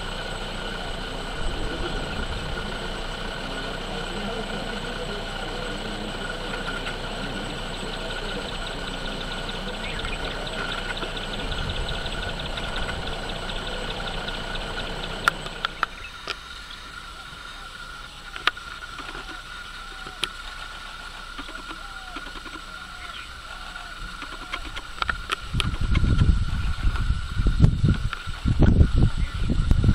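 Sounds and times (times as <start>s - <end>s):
faint short calls: 0.0s - 25.0s
high insect drone: 0.0s - 29.9s
low engine rumble: 0.0s - 29.9s
sharp clicks: 9.9s - 16.5s, 21.3s - 22.7s, 24.1s - 26.3s.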